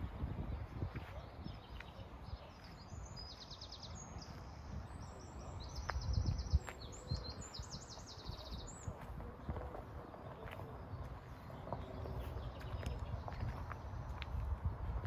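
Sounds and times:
songbirds singing: 0:00.0 - 0:15.0
footsteps on gravel: 0:08.8 - 0:15.0.

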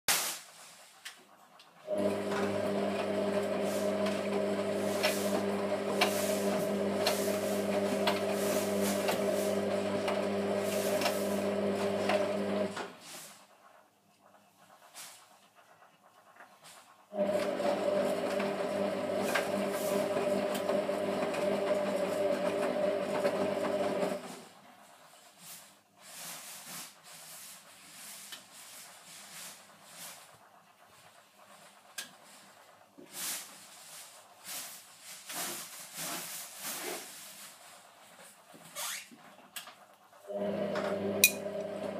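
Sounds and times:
washing machine drum swishing: 0:00.1 - 0:13.8.

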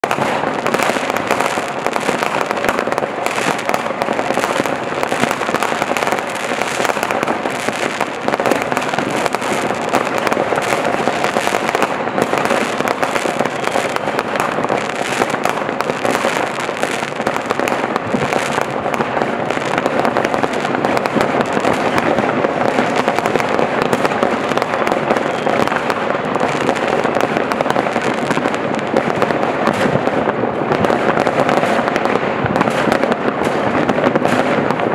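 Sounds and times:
fireworks banging and crackling: 0:00.0 - 0:34.9.

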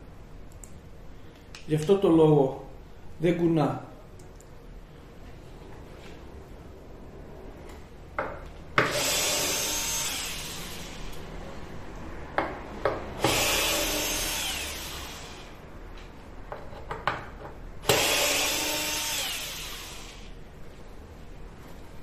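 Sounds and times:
cordless drill driving screws: 0:08.8 - 0:11.2, 0:13.2 - 0:15.5, 0:17.9 - 0:20.3.

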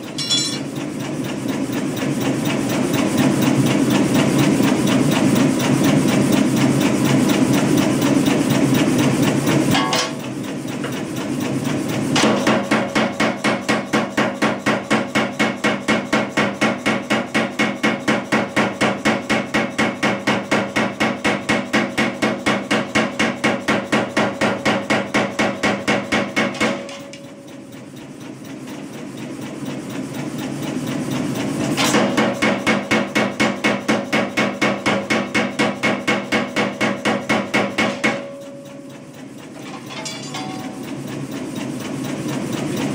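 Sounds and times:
machine running: 0:00.0 - 0:13.0, 0:26.5 - 0:32.4, 0:35.4 - 0:42.9.

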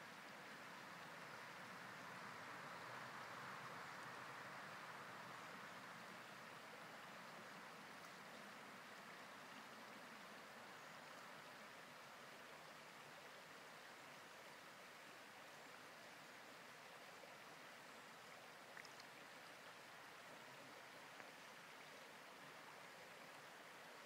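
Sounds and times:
river running over stones: 0:00.0 - 0:24.0
faint clicks: 0:18.7 - 0:19.2.

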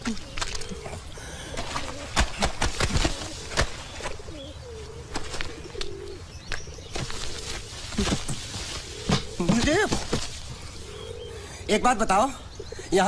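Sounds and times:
low wavering cooing sound: 0:00.0 - 0:02.2, 0:03.0 - 0:08.1, 0:10.7 - 0:11.6
wet laundry slapping and splashing: 0:01.6 - 0:04.1, 0:07.0 - 0:10.5.

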